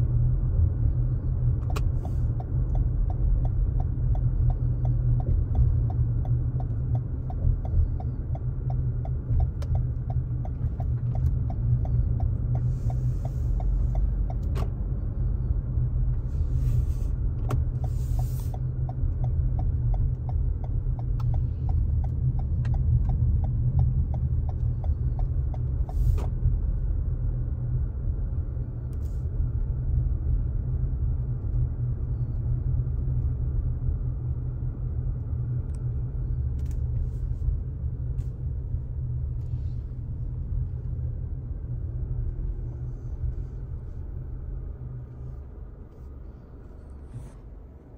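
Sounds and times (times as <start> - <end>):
car cabin road rumble: 0.0 - 47.9.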